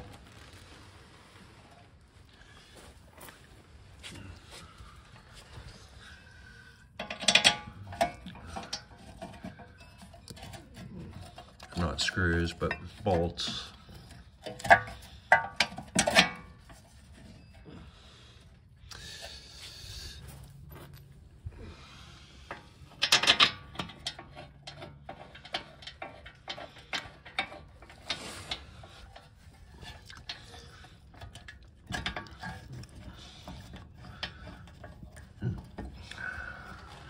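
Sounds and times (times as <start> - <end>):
metal clanks of tools: 6.9 - 17.6, 22.4 - 37.0.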